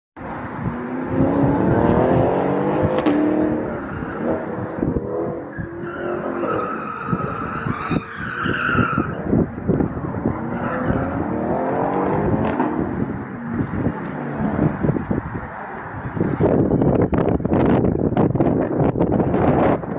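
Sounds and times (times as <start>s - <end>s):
car engines revving: 0.2s - 19.9s
tyres squealing: 5.4s - 9.3s.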